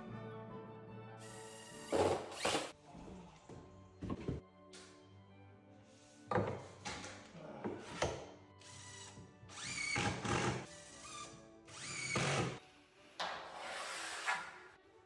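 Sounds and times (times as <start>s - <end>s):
background music: 0.0s - 15.0s
cordless drill driving screws: 8.6s - 12.6s.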